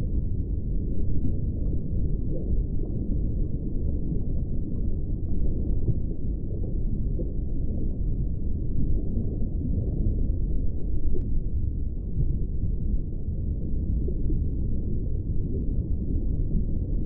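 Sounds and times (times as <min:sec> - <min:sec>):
underwater low rumble: 0:00.0 - 0:17.0.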